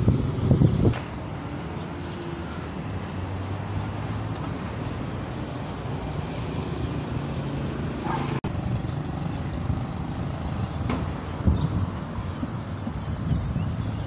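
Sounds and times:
cars driving past: 0.0s - 12.9s.

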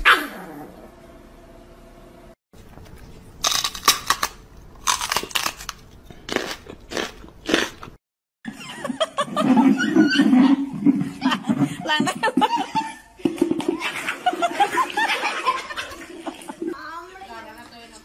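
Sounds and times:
dog crunching chewing: 2.6s - 8.0s.

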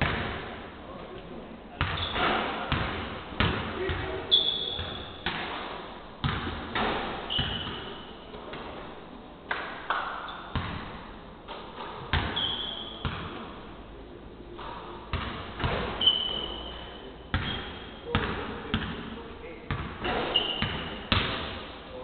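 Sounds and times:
basketballs bouncing on hardwood: 1.8s - 7.9s, 10.5s - 10.9s, 11.8s - 12.4s, 13.0s - 13.4s, 15.1s - 16.1s, 17.3s - 19.1s, 19.7s - 21.6s
short high-pitched squeaks: 16.0s - 17.8s, 20.1s - 20.6s.

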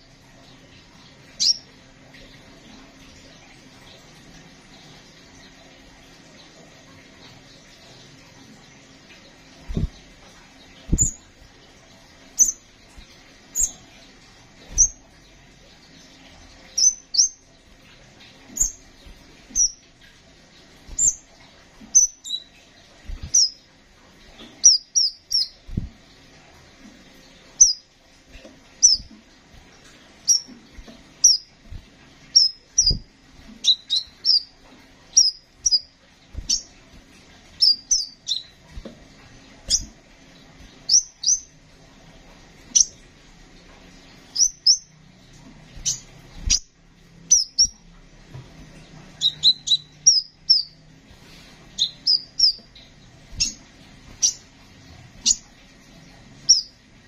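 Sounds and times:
sunbird chirping: 1.3s - 1.7s, 10.8s - 11.3s, 12.3s - 12.7s, 13.5s - 13.9s, 16.7s - 17.4s, 18.5s - 18.8s, 19.5s - 19.9s, 21.9s - 23.6s, 24.6s - 25.7s, 27.6s - 27.9s, 28.8s - 29.2s, 30.2s - 30.6s, 31.2s - 31.5s, 32.3s - 33.0s, 33.6s - 35.9s, 36.5s - 36.8s, 37.5s - 38.6s, 40.8s - 41.5s, 42.7s - 43.0s, 44.3s - 45.0s, 47.3s - 47.8s, 49.2s - 50.8s, 51.7s - 54.5s, 56.4s - 56.8s
soft low thumps: 9.7s - 10.1s.

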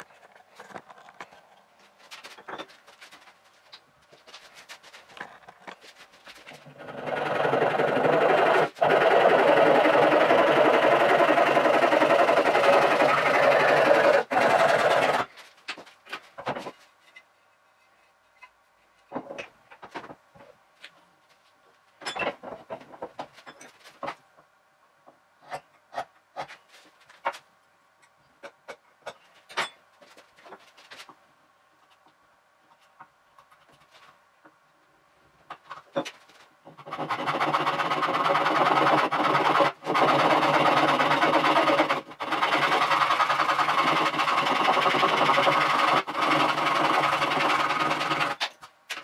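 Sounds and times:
hand saw cutting wood: 6.8s - 15.3s, 36.8s - 48.5s
tools knocking and clicking: 28.0s - 29.8s.

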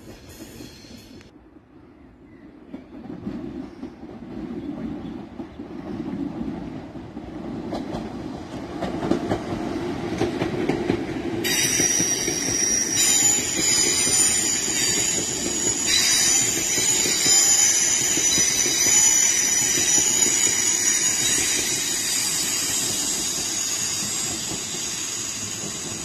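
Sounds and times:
train wheels rumbling on rails: 0.0s - 1.4s, 2.3s - 26.0s
high-pitched wheel squeal: 11.5s - 26.0s.

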